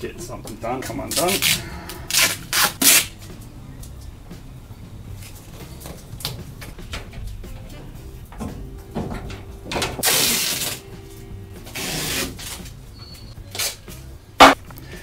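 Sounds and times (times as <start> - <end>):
cloth tape tearing off roll: 1.1 - 3.3, 10.0 - 10.8, 11.6 - 12.8, 13.5 - 14.1.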